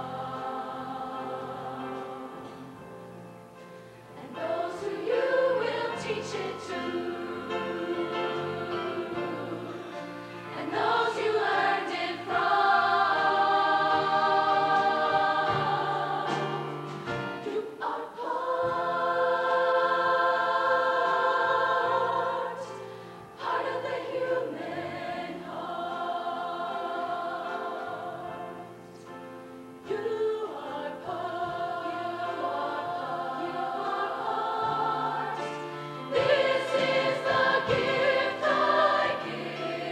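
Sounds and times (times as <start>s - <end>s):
choir singing in harmony: 0.0s - 39.9s.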